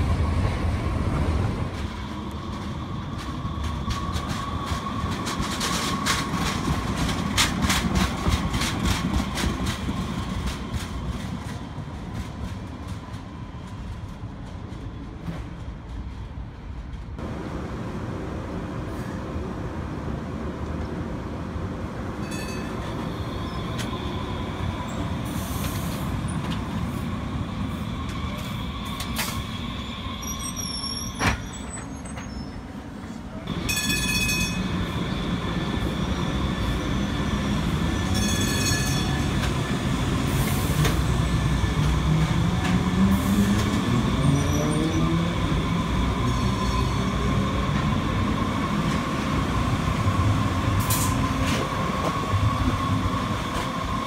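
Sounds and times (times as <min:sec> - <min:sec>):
electric train drive hum: 0:17.2 - 0:22.1.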